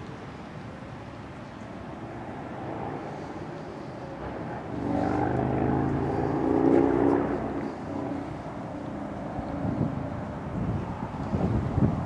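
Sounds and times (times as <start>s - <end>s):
vehicle passing close by: 1.9s - 11.3s.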